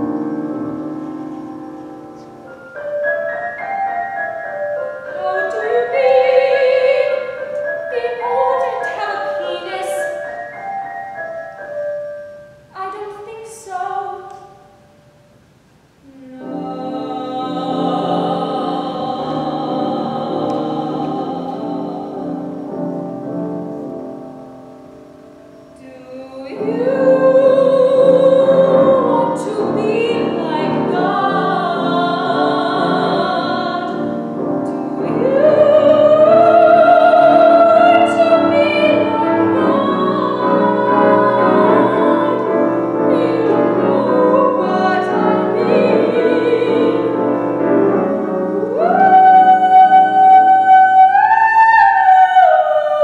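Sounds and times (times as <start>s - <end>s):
piano accompaniment: 0.0s - 53.0s
woman singing operatic: 5.0s - 10.6s, 12.7s - 14.8s, 16.0s - 23.0s, 25.8s - 53.0s.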